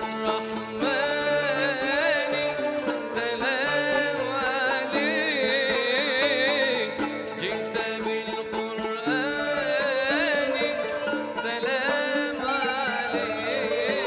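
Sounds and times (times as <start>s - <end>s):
plucked strings ensemble: 0.0s - 14.0s
flute lead melody: 7.2s - 14.0s.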